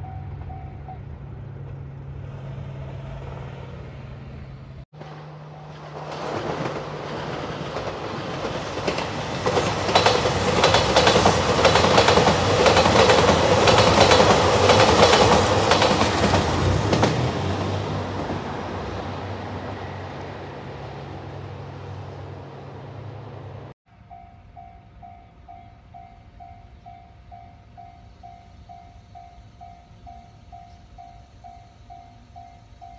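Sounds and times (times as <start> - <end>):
level-crossing warning bell: 0.0 - 1.2, 24.1 - 32.9
diesel train passing: 0.0 - 23.8
wheels clickety-clack on rail joints: 5.0 - 23.7.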